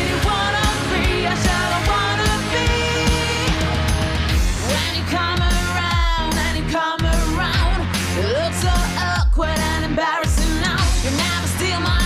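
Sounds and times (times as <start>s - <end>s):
rock music: 0.0s - 12.0s
steady drum beat: 0.0s - 12.0s.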